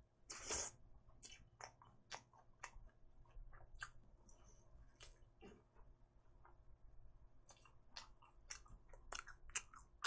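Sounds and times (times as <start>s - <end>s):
soft chewing: 0.3s - 10.0s
wet mouth clicks: 0.4s - 2.9s.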